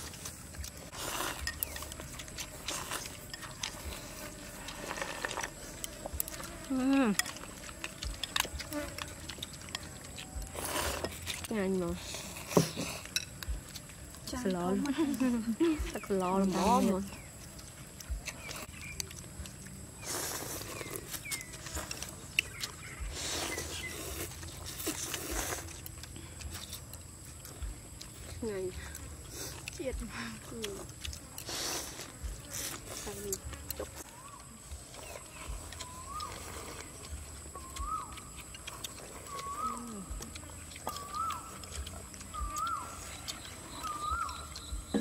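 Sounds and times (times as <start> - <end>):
utensils clicking against bowls: 0.6 - 4.0
animal calling: 32.3 - 45.0.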